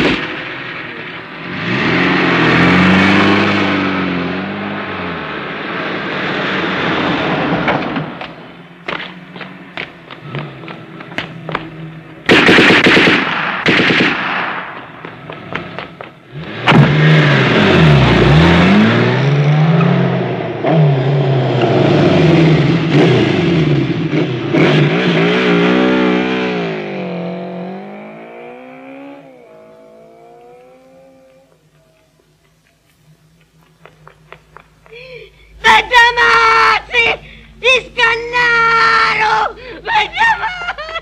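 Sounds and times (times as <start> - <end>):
car engine revving hard: 1.4 - 8.0, 16.3 - 31.4
automatic gunfire: 12.3 - 14.7.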